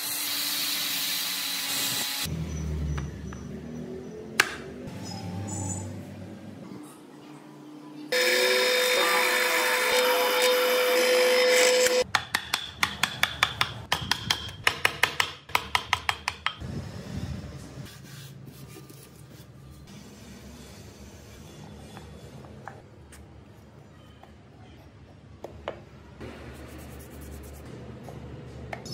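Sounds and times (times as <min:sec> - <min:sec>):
power tool humming: 0:08.1 - 0:12.0
chisel striking wood: 0:12.1 - 0:16.6.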